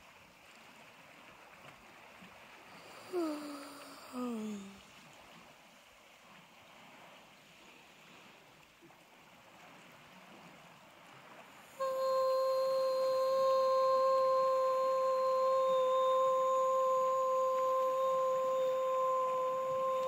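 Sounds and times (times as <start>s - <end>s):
faint hiss of the sea: 0.0s - 20.0s
loud steady tone: 11.8s - 20.0s.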